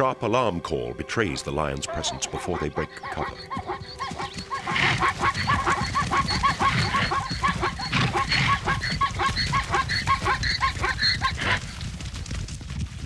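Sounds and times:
zebras barking alarm calls: 1.9s - 11.7s
drumming of hooves: 1.9s - 13.0s.

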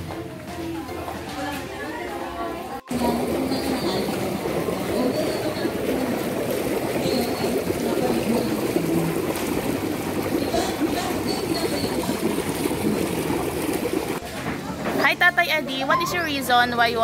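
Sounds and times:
water splashing into a pool: 2.9s - 14.3s.

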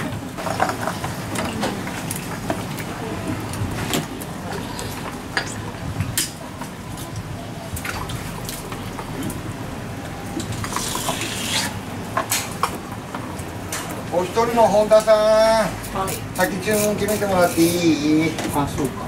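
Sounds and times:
watery splash: 7.0s - 9.5s, 10.2s - 11.8s.

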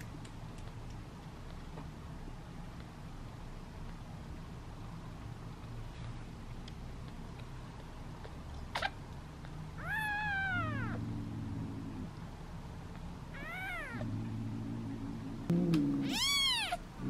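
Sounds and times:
kitten meowing: 9.8s - 11.0s, 13.4s - 14.0s, 15.9s - 16.9s.

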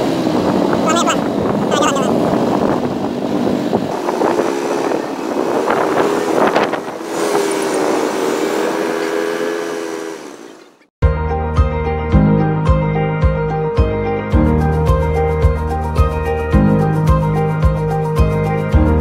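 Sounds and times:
traffic noise: 0.0s - 10.9s
vehicle engine running: 0.0s - 10.9s.

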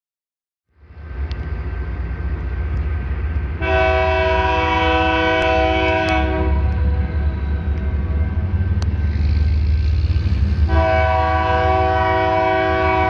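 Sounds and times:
train rumbling: 0.7s - 13.0s
locomotive air horn chord: 3.6s - 7.2s, 10.5s - 13.0s.

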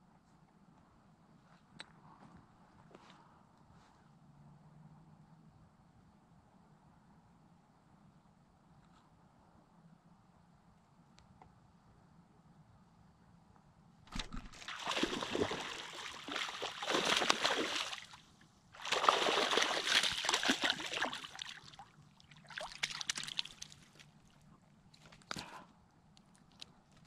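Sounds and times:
water splashing and sloshing: 14.1s - 24.4s.

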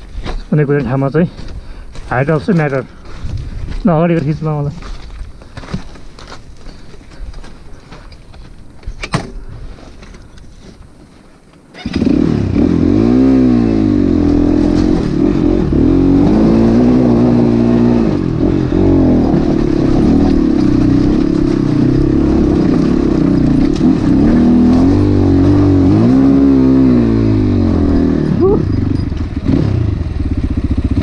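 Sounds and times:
dirt bike engine revving: 11.8s - 31.0s.

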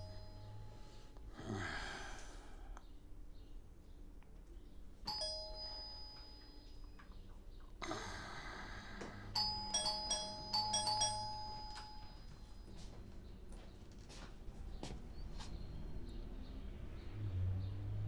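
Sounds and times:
two-tone doorbell chime: 0.0s - 1.1s, 5.0s - 7.2s, 9.3s - 12.9s.

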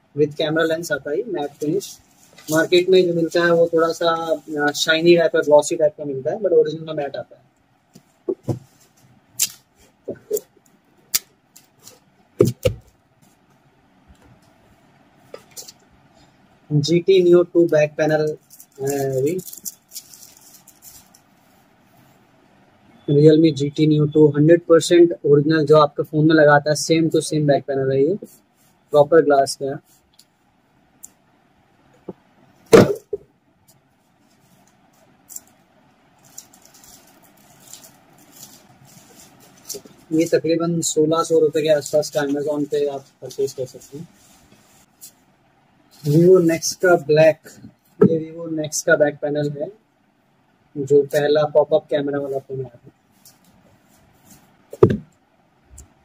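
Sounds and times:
paper rustling: 0.8s - 5.0s, 36.2s - 40.4s
loud thump: 32.7s - 33.2s, 54.8s - 55.1s.

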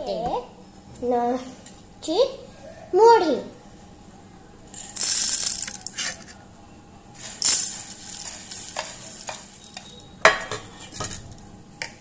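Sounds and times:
puffed rice pouring onto metal: 7.2s - 9.7s.

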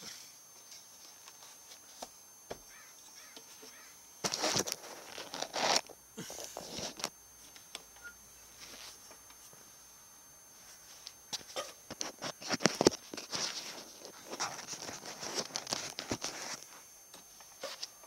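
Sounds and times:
grass rustling against camera: 3.7s - 7.6s, 10.6s - 18.0s.

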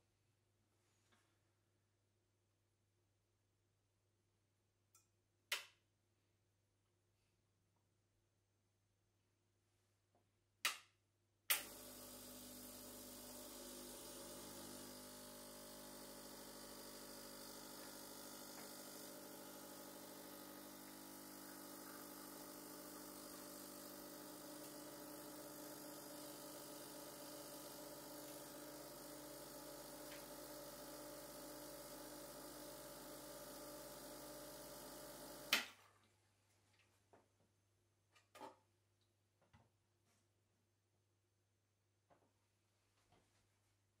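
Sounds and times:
espresso machine pump humming: 11.5s - 35.7s.

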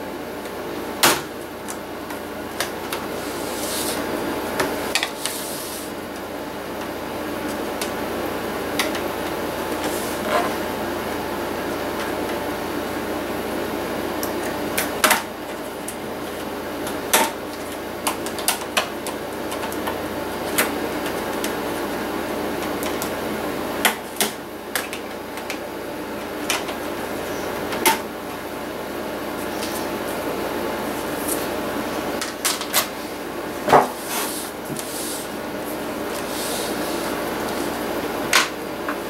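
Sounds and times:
steady background hum: 0.0s - 39.0s.

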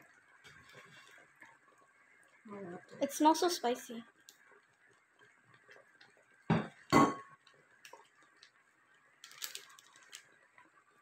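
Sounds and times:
foil packet crinkling: 9.2s - 10.4s.

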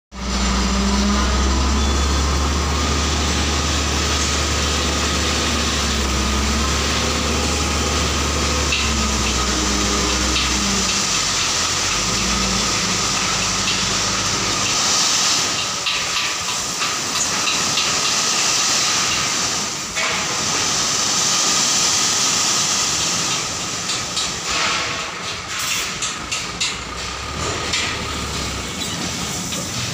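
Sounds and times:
diesel truck engine droning: 0.1s - 17.8s, 24.5s - 29.9s
gravel pouring onto pile: 1.3s - 26.0s.

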